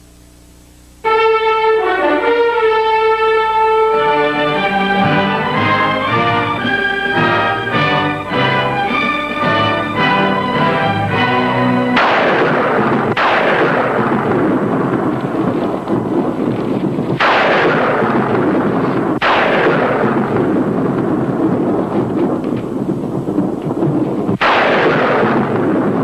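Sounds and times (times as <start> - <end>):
orchestral music: 1.0 - 18.6
thunderclaps rolling: 4.0 - 26.0.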